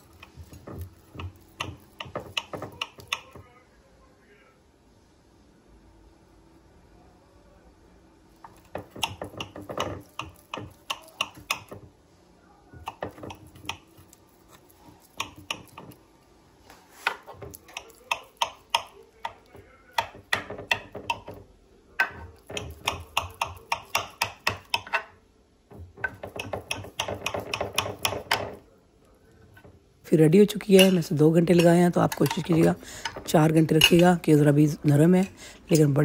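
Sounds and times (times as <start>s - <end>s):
knife tapping on glass dish: 0.1s - 3.4s, 8.4s - 11.9s, 12.8s - 14.1s, 17.1s - 21.4s, 22.0s - 25.1s, 26.0s - 28.6s, 30.7s - 34.1s.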